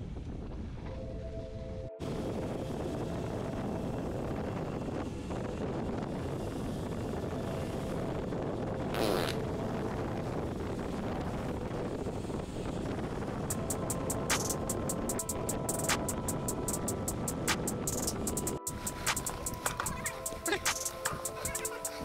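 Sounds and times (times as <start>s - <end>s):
wind rushing over microphone: 0.0s - 22.0s.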